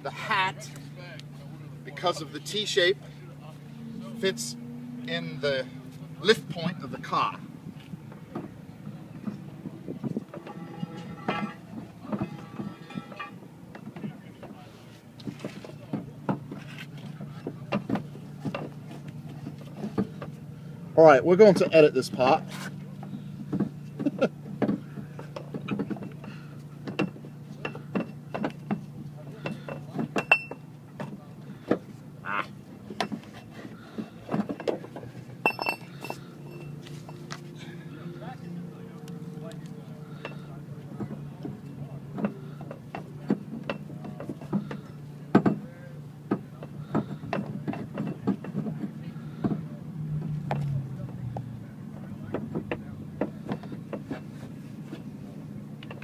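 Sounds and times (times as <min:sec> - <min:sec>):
metal clicks and knocks: 0:23.0 - 0:31.9, 0:32.9 - 0:37.4, 0:39.5 - 0:49.6
clicks and knocks of metal part: 0:34.0 - 0:36.2.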